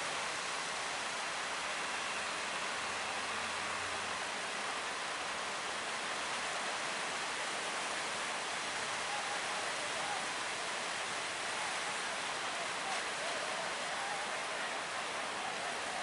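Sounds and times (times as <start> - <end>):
breaking waves and surf: 0.0 - 16.0.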